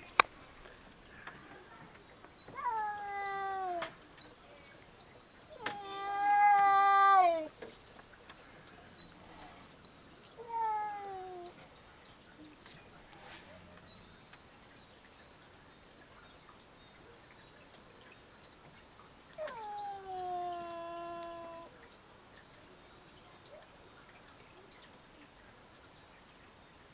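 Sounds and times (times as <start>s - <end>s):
cat meowing: 2.5s - 3.9s, 5.6s - 7.5s, 10.4s - 11.6s, 19.4s - 21.7s.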